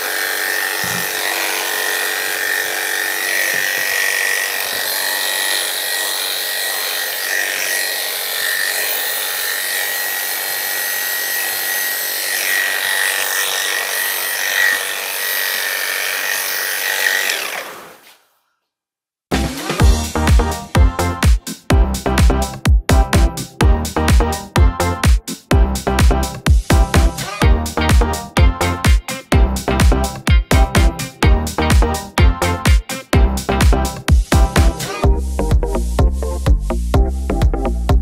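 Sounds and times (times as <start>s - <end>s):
electric clippers buzzing: 0.0s - 18.1s, 27.0s - 33.2s.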